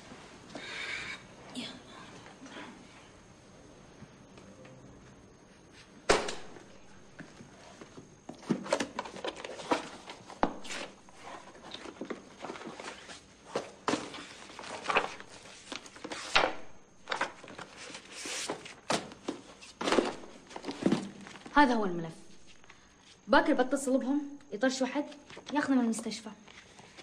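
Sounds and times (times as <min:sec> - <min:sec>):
folder clacking and papers rustling: 0:07.8 - 0:21.5.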